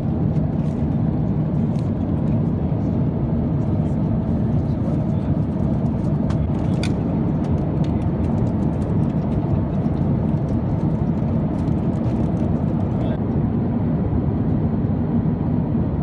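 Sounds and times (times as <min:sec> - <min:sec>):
airliner cabin drone: 0:00.0 - 0:16.0.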